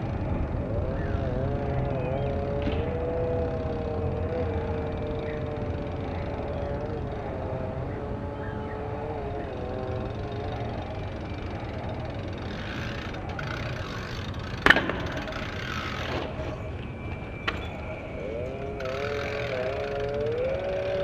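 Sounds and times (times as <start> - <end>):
bike landing on paving: 14.6 - 15.4.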